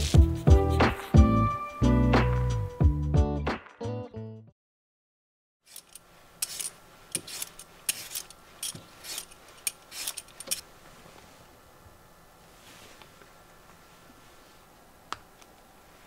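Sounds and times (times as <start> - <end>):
peeler scraping potato skin: 5.6 - 10.6.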